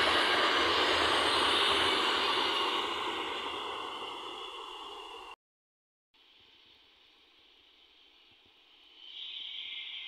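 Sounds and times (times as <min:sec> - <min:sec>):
freight train wheels on rails: 0:00.0 - 0:05.4.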